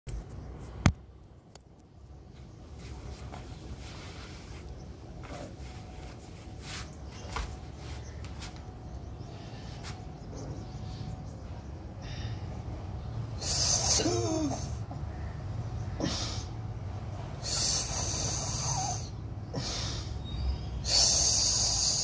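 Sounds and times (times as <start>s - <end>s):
low background rumble: 0.1s - 22.0s
man breathing: 9.2s - 14.9s, 15.9s - 22.0s
forceful voiced breath: 17.3s - 22.0s.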